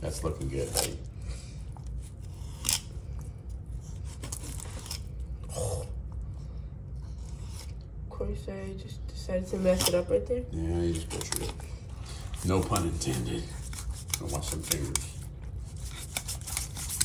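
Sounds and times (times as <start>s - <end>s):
knife scraping through fish: 12.2s - 17.0s.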